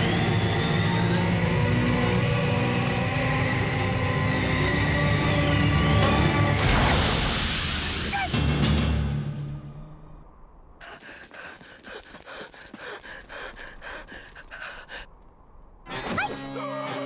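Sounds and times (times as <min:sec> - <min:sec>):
music: 0:00.0 - 0:10.5, 0:15.8 - 0:17.0.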